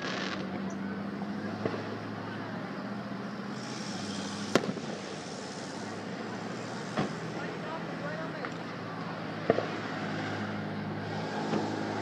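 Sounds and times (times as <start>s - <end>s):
fireworks popping and banging: 0.0s - 0.7s, 1.6s - 2.0s, 3.8s - 5.6s, 9.4s - 9.9s.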